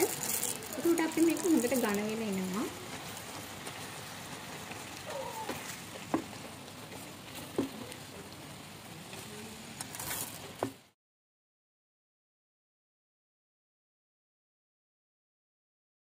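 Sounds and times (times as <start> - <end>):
fruit sizzling in syrup: 0.0 - 11.0
spatula tapping pan: 5.5 - 6.4.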